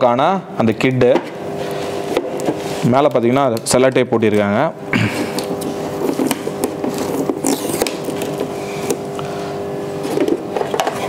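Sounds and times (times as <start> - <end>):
steady hum: 0.0 - 11.0
plastic film ripping: 6.2 - 8.5.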